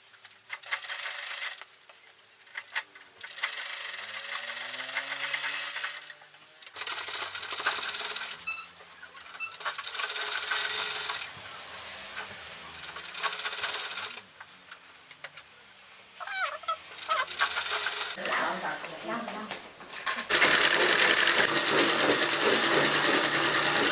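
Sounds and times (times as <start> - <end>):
sewing machine stitching: 0.5 - 1.6, 2.6 - 11.4, 12.0 - 14.2, 16.9 - 18.2, 20.3 - 23.9.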